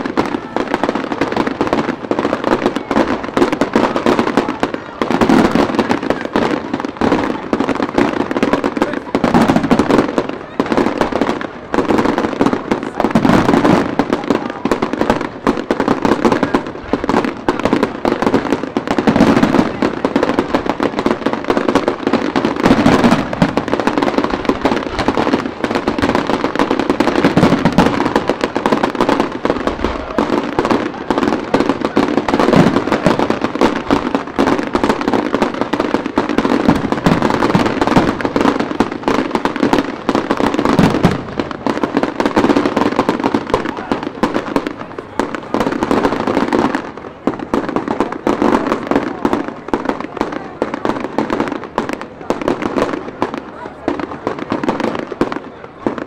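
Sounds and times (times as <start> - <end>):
fireworks bangs and crackles: 0.0 - 56.0.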